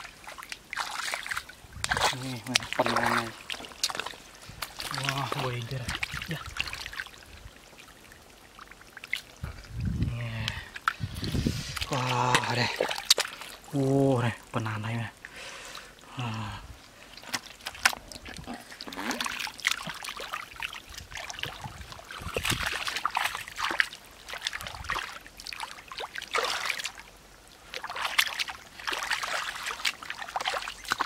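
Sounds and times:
water trickling: 0:00.0 - 0:31.0
hands splashing in muddy water: 0:00.2 - 0:07.2, 0:10.4 - 0:13.6, 0:17.1 - 0:27.0, 0:27.7 - 0:31.0.

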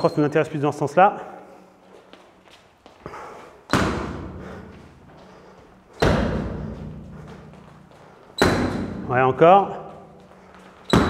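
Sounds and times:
gloved punches echoing: 0:03.7 - 0:04.7, 0:05.9 - 0:07.6, 0:08.4 - 0:09.2.

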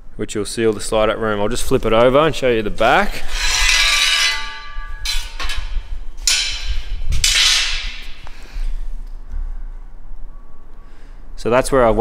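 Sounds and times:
metal frame clanging: 0:02.8 - 0:08.7
metal scraping on concrete: 0:03.1 - 0:08.4.

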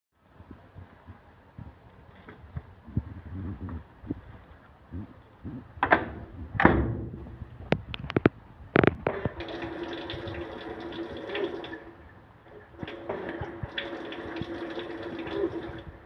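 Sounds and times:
water rushing into drum: 0:08.8 - 0:16.0
washing machine hum: 0:09.0 - 0:16.0.

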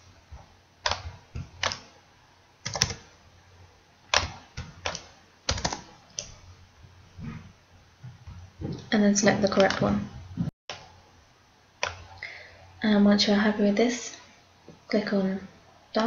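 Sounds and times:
computer keyboard key presses: 0:00.8 - 0:01.9, 0:02.6 - 0:03.0, 0:04.1 - 0:06.3, 0:11.8 - 0:12.0.

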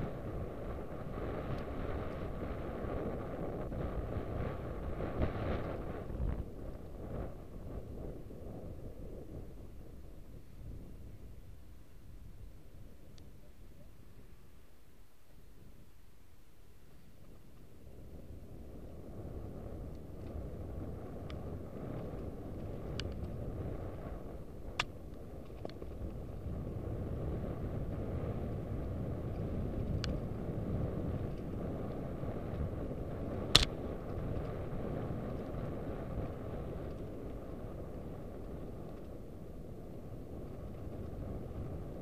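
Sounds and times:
wind on microphone: 0:00.0 - 0:42.0
bike clicks and rattles: 0:19.7 - 0:26.5, 0:28.8 - 0:41.7.

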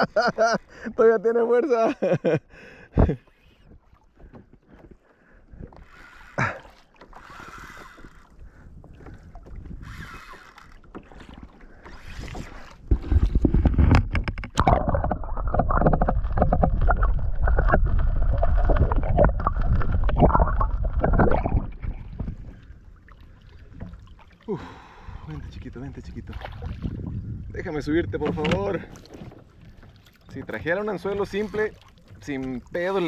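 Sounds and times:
water sloshing and splashing: 0:03.1 - 0:33.0.

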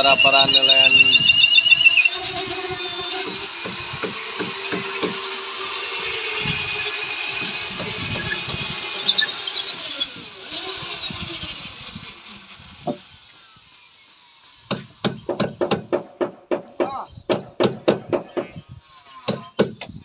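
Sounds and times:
bird chirping: 0:00.0 - 0:02.9, 0:09.0 - 0:10.3
machine hum: 0:00.0 - 0:12.8.

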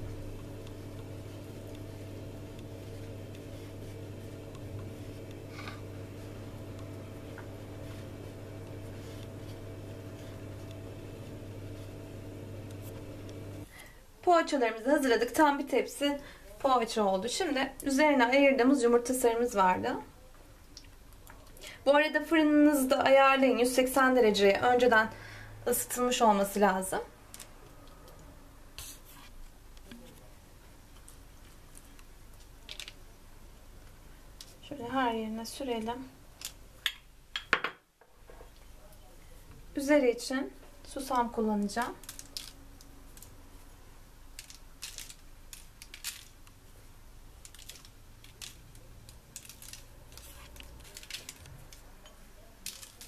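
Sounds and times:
seeds ticking on paper and dough: 0:00.0 - 0:13.6, 0:40.8 - 0:43.4, 0:44.3 - 0:46.7, 0:47.3 - 0:51.9, 0:52.5 - 0:53.0
pastry brush rubbing and dabbing: 0:00.0 - 0:13.7.

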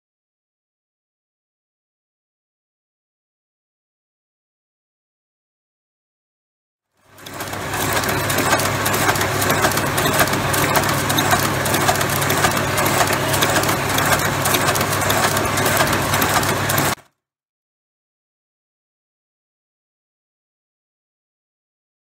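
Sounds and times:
machine motor hum: 0:07.0 - 0:17.0
rapid metal clicks: 0:07.2 - 0:17.0.

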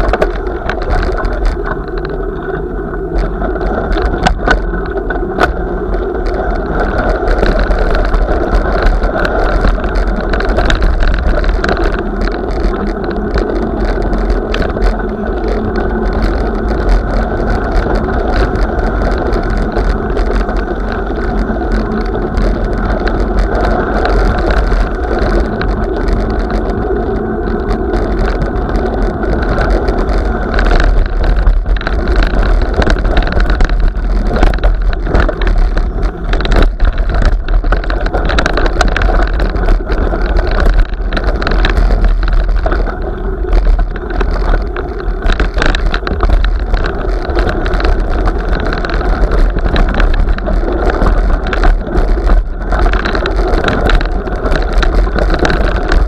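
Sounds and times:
vehicle rumbling over snow: 0:00.0 - 0:56.0
knocks and rattles: 0:27.7 - 0:56.0.

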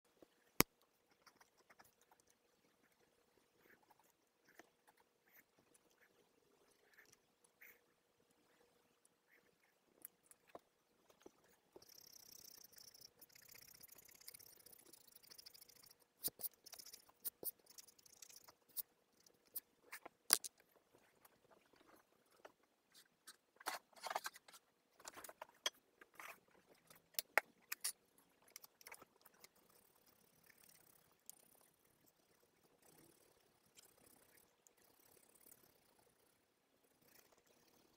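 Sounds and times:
pen scratching on paper: 0:13.6 - 0:18.9.

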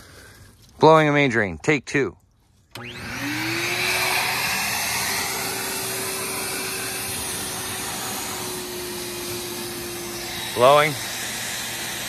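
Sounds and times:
air blower motor whine: 0:02.7 - 0:12.0.

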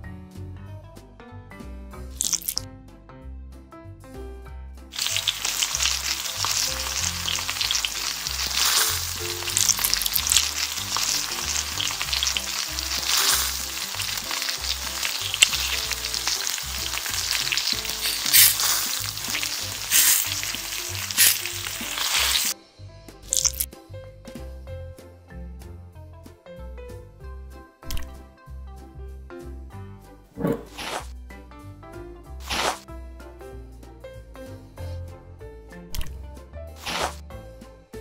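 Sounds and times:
background music: 0:00.0 - 0:38.0
food sizzling in a pan: 0:02.2 - 0:02.6, 0:04.9 - 0:22.6, 0:23.3 - 0:23.7.

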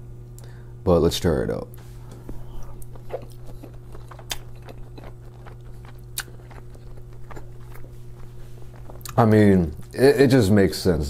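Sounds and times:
low electrical hum: 0:00.0 - 0:11.0
person chewing: 0:02.0 - 0:10.0.

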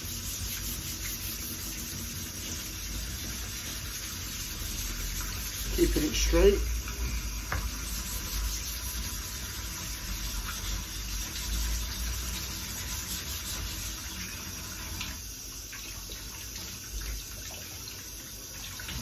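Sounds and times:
whetstone scraping on wet sandpaper: 0:00.0 - 0:02.6, 0:03.3 - 0:06.5, 0:07.8 - 0:09.4.

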